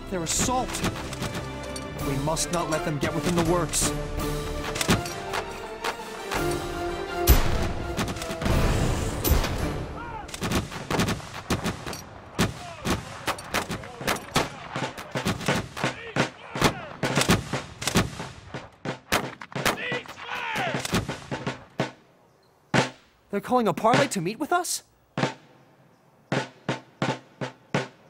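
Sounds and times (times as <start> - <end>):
musket shots: 0.5 - 1.8, 4.5 - 6.6, 7.2 - 22.0
man shouting: 10.0 - 10.3, 15.9 - 17.0, 19.7 - 20.8.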